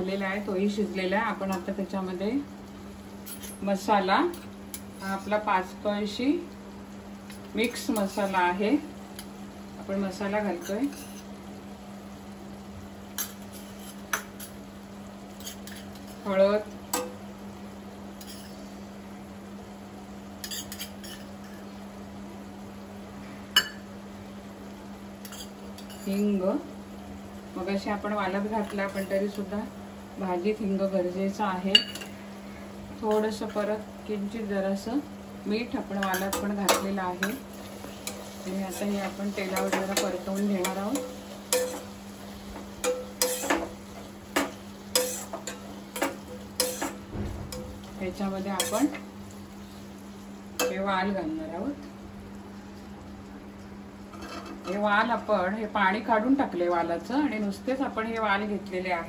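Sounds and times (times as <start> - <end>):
faint sizzle: 0.0 - 59.0
steady low hum: 0.0 - 59.0
spoon scraping in metal pot: 10.6 - 11.3, 18.2 - 18.6, 44.4 - 47.0
spoon clinking on steel cookware: 23.6 - 23.8, 31.7 - 32.1, 36.0 - 37.4, 38.8 - 41.9, 42.8 - 43.7, 44.4 - 47.7, 48.6 - 49.0.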